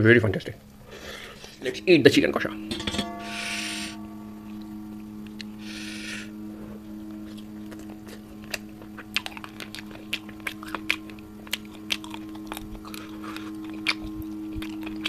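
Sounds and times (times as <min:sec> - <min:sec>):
steady low hum: 0:00.0 - 0:15.0
wet chewing smacks: 0:07.7 - 0:15.0.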